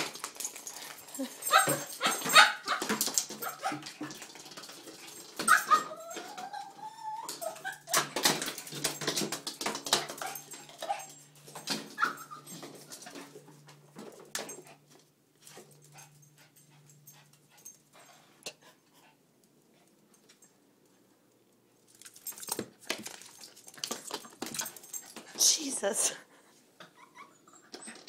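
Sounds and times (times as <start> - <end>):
small dog whining and yipping: 5.4 - 8.1, 11.9 - 12.6, 26.8 - 28.0.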